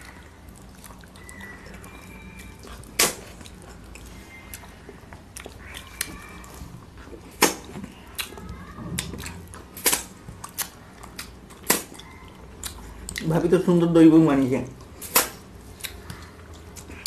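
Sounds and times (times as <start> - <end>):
people chewing: 0.0 - 13.4, 14.8 - 17.0
sharp mouth smacks: 11.6 - 12.0.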